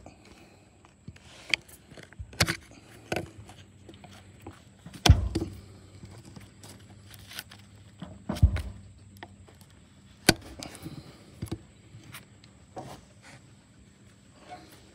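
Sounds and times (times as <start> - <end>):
heavy thump: 5.0 - 5.7, 8.3 - 8.9.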